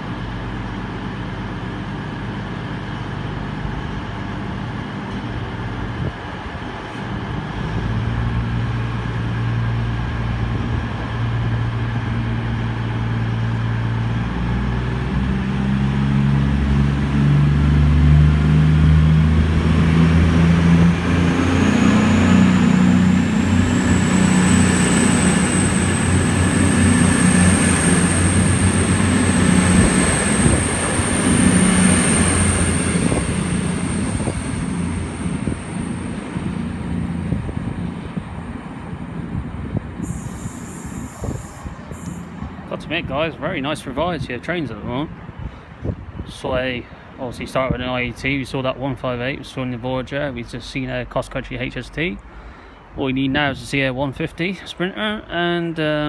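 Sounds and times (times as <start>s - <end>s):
train diesel engines revving: 0.0s - 46.3s
high whine: 7.5s - 44.0s.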